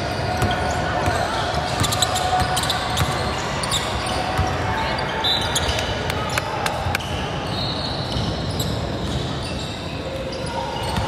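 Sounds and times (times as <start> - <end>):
game and crowd noise: 0.0 - 11.0
ball bouncing on gym court: 0.3 - 4.6.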